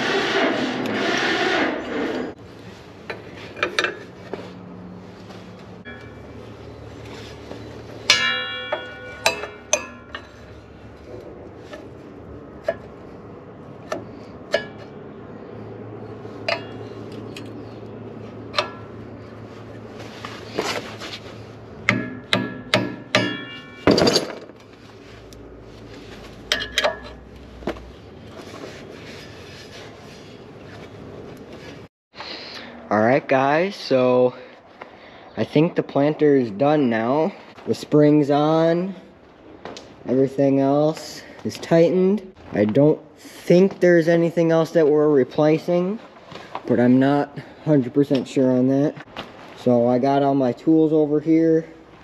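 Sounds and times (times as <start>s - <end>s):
hand tools clanking on steel: 3.0s - 4.2s, 5.8s - 11.9s, 13.8s - 15.0s, 16.4s - 17.8s, 18.4s - 19.2s, 21.8s - 24.6s, 26.4s - 27.3s.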